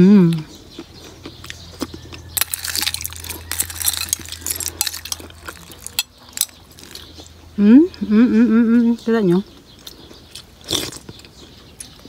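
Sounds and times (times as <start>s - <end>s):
metal spoon clinking in ice and glass: 2.4s - 7.0s.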